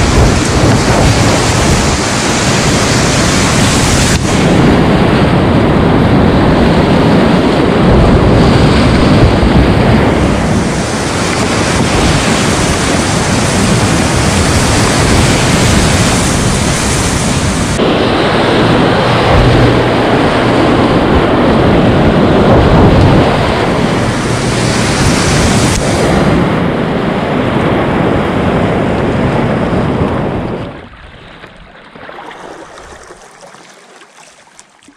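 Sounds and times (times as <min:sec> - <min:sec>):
whitewater rapids rushing: 0:32.0 - 0:34.9.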